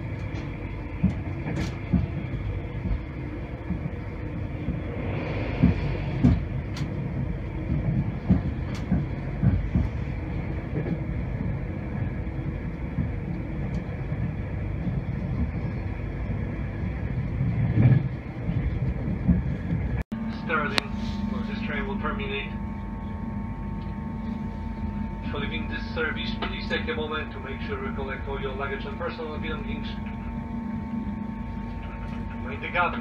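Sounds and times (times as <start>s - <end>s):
train wheels rumbling on rails: 0.0s - 33.0s.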